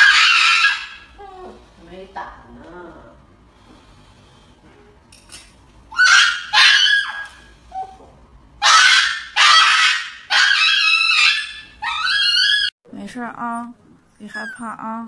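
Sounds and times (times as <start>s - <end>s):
small dog screaming: 0.0s - 1.2s, 5.9s - 7.9s, 8.6s - 12.7s.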